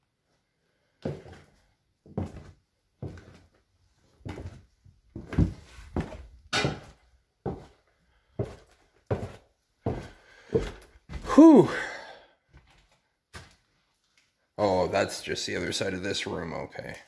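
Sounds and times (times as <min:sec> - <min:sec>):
footsteps on wooden stairs: 0:01.0 - 0:01.5, 0:02.1 - 0:03.6, 0:04.2 - 0:11.4.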